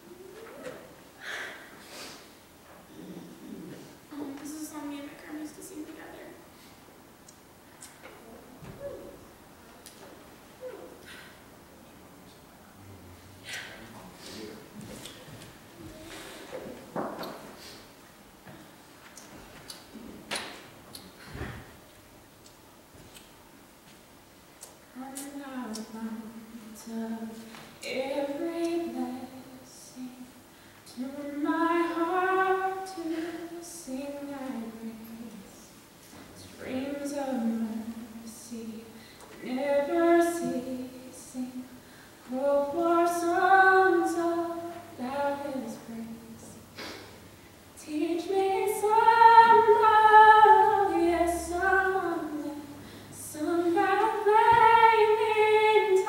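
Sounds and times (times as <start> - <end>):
woman singing unaccompanied: 24.9 - 35.8, 36.4 - 46.6, 47.8 - 56.0
singer breathing: 52.8 - 53.2.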